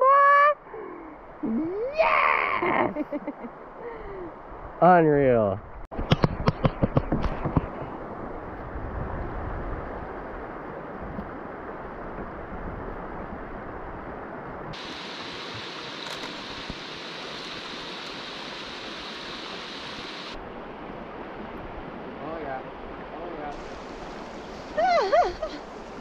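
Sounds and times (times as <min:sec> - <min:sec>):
bright hiss: 0:14.8 - 0:20.4, 0:23.5 - 0:26.0.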